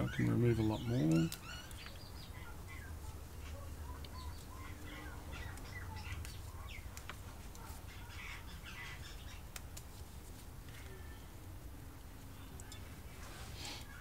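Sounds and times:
birds chirping: 0:00.0 - 0:09.6
low steady hum: 0:00.0 - 0:14.0.

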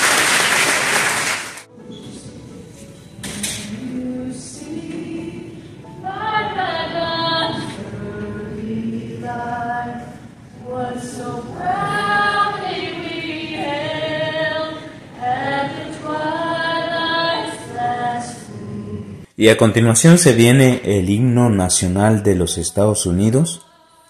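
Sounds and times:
choir singing: 0:03.3 - 0:19.3.

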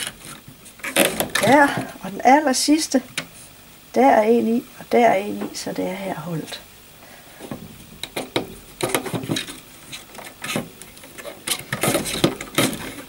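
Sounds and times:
cane stakes rustling and scraping: 0:00.0 - 0:02.3, 0:07.3 - 0:13.0.

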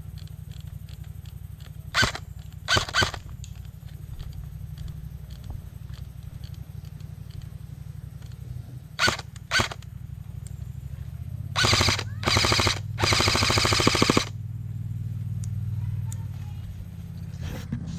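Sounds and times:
steady low hum: 0:00.0 - 0:17.9
airsoft gun shots and bursts: 0:01.9 - 0:03.4, 0:09.0 - 0:09.9, 0:11.5 - 0:14.4.

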